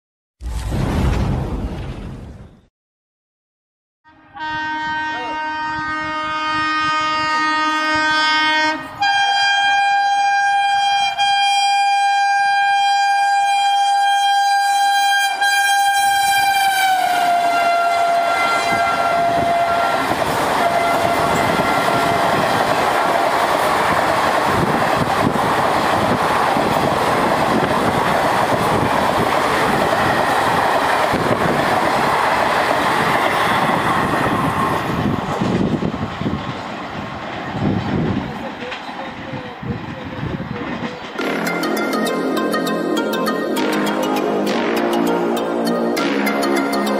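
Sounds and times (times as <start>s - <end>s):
train horn: 4.1s - 22.6s, 41.2s - 41.8s
train wheels clattering on rails: 20.0s - 41.2s.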